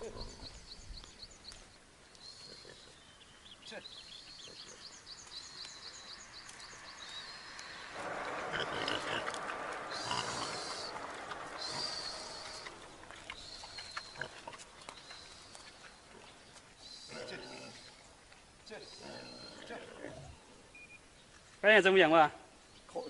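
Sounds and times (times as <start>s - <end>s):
pig grunting: 8.0s - 14.7s, 17.1s - 17.9s, 19.0s - 20.6s.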